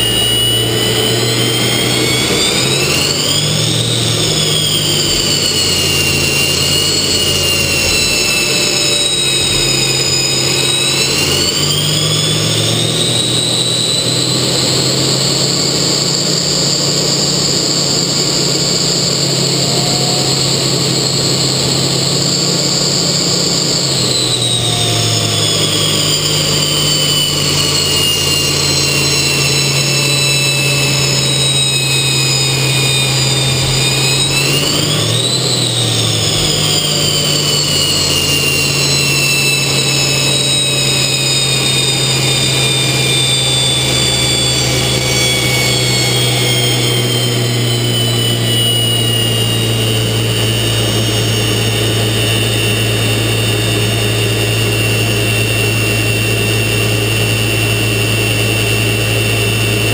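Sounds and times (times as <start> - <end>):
jet engine whine with drifting tones: 0.0 - 59.9.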